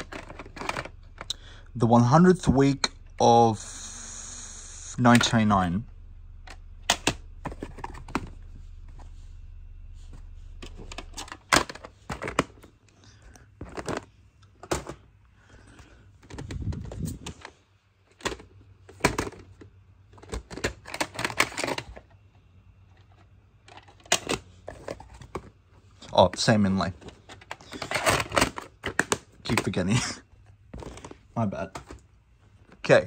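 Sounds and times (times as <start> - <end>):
plastic cassette cases clacking: 0.0 - 1.4, 6.5 - 8.4, 10.6 - 12.8, 13.6 - 15.0, 16.2 - 22.2, 23.0 - 32.1
short rubbing rumble: 0.0 - 12.1
low steady hum: 0.0 - 33.0.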